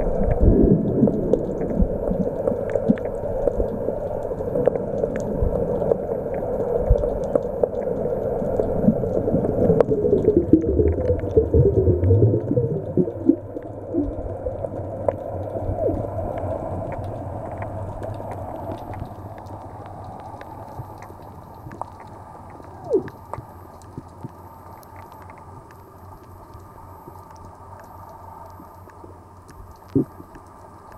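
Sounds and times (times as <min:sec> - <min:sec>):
gurgling bubbles: 0:00.0 - 0:24.4, 0:29.8 - 0:30.4
faint crackling clicks: 0:00.0 - 0:30.9
underwater sloshing water: 0:05.8 - 0:24.3.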